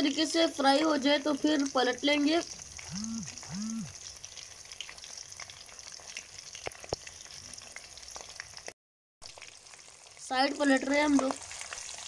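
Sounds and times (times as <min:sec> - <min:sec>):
chicken deep-frying in oil: 0:00.0 - 0:12.0
short low hums: 0:02.9 - 0:03.9.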